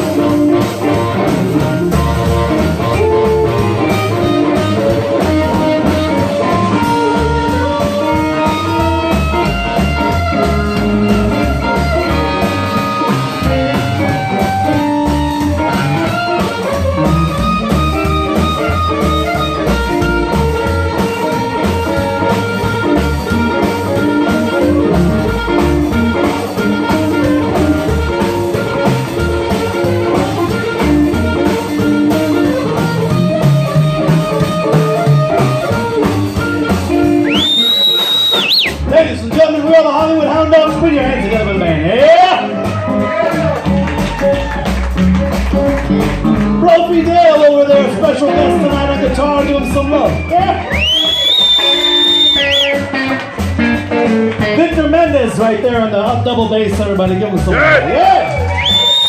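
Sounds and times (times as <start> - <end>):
amplified harmonica: 0.0 - 39.0, 48.2 - 54.1
drum kit boogie beat: 0.0 - 59.0
electric guitar: 0.0 - 59.0
upright double bass: 0.0 - 59.0.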